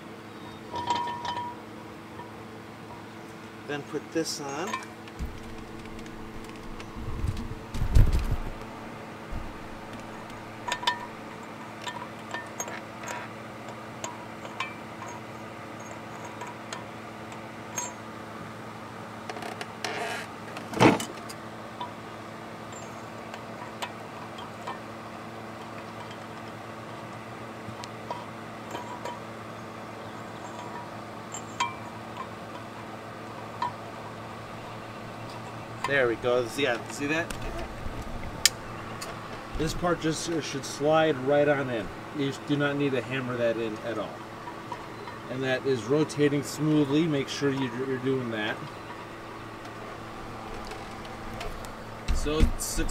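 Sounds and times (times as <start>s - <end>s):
steady low hum: 0.0s - 52.9s
metal clinking with ringing: 0.7s - 1.6s, 4.4s - 5.5s, 9.6s - 13.3s, 14.0s - 16.9s, 17.7s - 18.0s, 28.0s - 29.3s, 30.4s - 32.4s
light clicks and clinks of metal parts: 0.7s - 2.4s, 3.7s - 7.0s, 9.6s - 18.0s, 22.7s - 29.3s, 30.0s - 33.8s, 34.6s - 40.6s.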